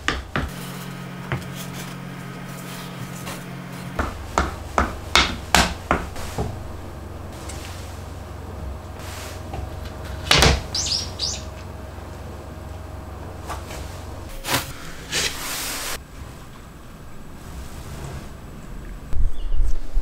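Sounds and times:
wooden knock: 0:04.0 - 0:06.6
wood scraping slide: 0:05.9 - 0:10.6, 0:12.7 - 0:16.5.

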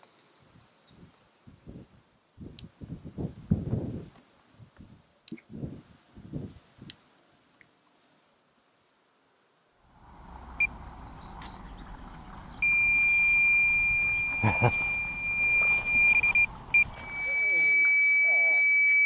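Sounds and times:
wind rumble on microphone: 0:00.4 - 0:07.0
bite alarm beep: 0:12.6 - 0:19.0
continuous high alarm tone: 0:12.6 - 0:19.0.

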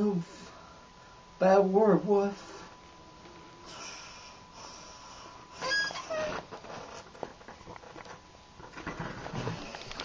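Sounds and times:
faint breathy sounds: 0:03.6 - 0:05.6.

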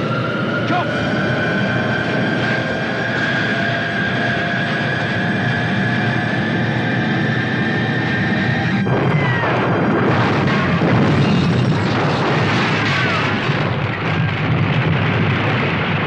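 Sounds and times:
film music: 0:00.0 - 0:13.7
crashing rumble: 0:08.3 - 0:16.0.

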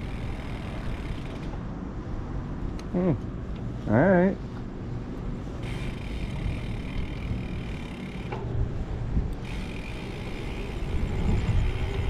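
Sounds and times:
wind rushing over microphone: 0:05.6 - 0:12.0.

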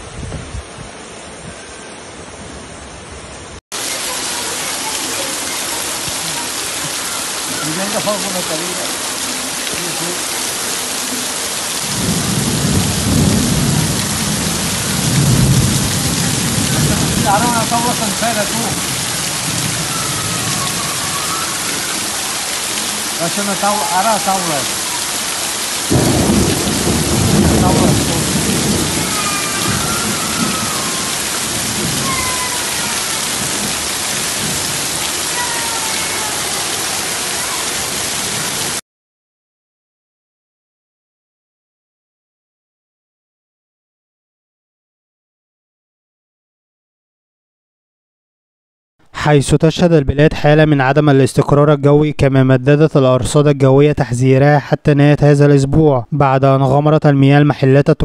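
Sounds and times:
heavy rain and rushing floodwater: 0:00.0 - 0:38.8
low rumble of thunder: 0:11.8 - 0:18.0, 0:25.9 - 0:34.9.

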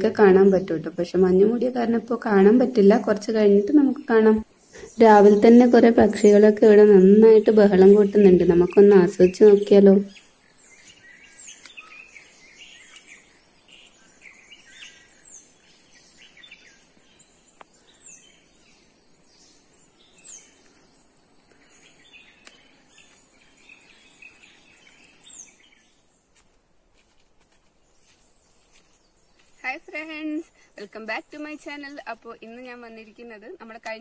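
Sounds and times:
birds chirping and calling: 0:00.0 - 0:26.0.

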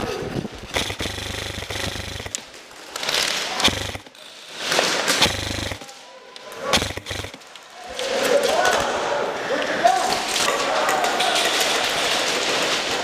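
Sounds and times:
airsoft gun firing full-auto: 0:00.7 - 0:02.5, 0:03.1 - 0:04.2, 0:05.1 - 0:05.9, 0:06.7 - 0:07.4.

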